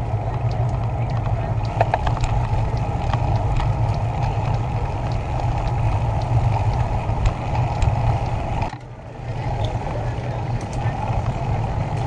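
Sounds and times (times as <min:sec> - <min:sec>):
wind noise: 0:00.0 - 0:08.8
bicycle rolling rumble: 0:00.0 - 0:12.0.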